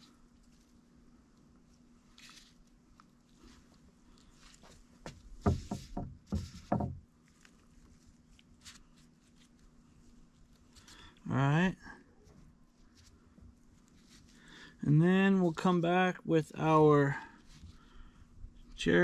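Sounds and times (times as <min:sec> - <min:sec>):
low thumps: 0:05.1 - 0:07.0.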